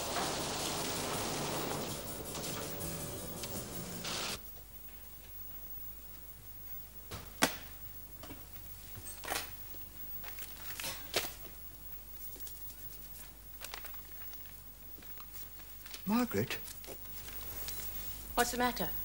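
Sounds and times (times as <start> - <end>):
soft rustling: 16.6 - 18.5.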